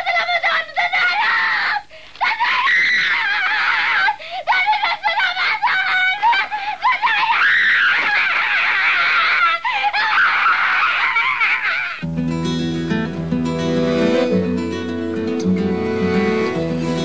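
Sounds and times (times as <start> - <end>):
woman crying out high-pitched: 0.0 - 12.0.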